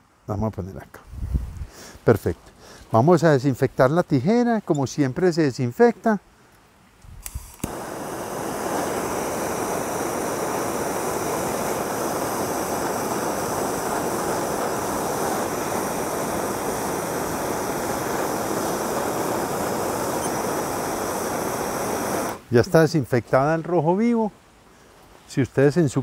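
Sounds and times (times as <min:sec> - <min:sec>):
gas torch hissing: 0:07.1 - 0:22.7.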